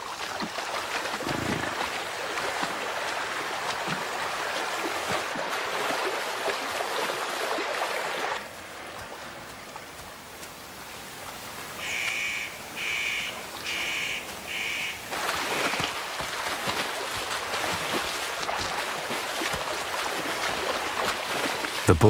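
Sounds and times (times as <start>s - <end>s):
animals splashing through shallows: 0.0s - 22.0s
river water running: 0.0s - 22.0s
bird calling: 11.8s - 15.8s.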